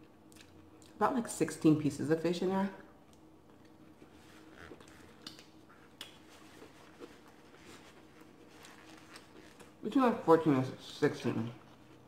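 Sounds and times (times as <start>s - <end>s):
paper napkin rustling: 4.0s - 10.1s.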